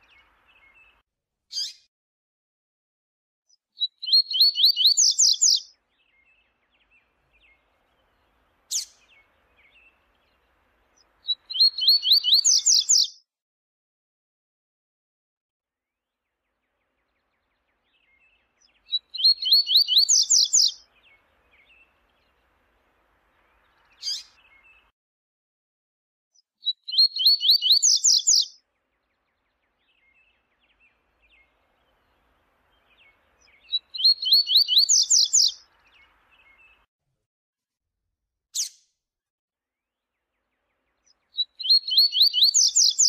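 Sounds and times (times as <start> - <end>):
bird singing rising songs: 0.0 - 1.0, 3.8 - 13.2, 16.2 - 24.9, 26.6 - 36.9, 40.0 - 43.0.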